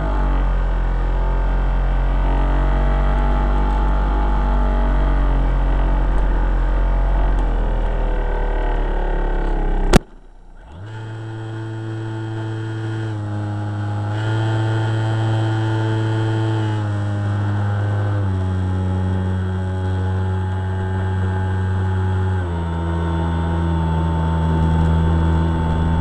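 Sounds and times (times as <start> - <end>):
electric motor and propeller whine: 0.0 - 26.0
sharp crack: 5.0 - 10.4.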